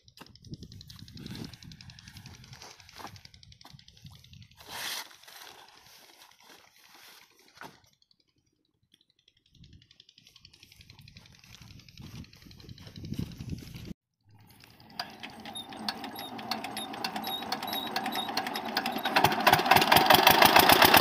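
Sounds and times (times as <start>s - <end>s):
plastic pipe rustling on sand: 4.5s - 7.9s.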